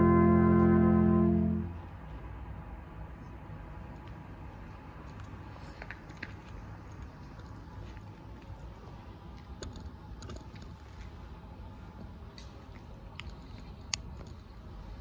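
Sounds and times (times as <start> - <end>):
low rumble: 0.0 - 2.3
faint clicks and rustles: 3.8 - 15.0.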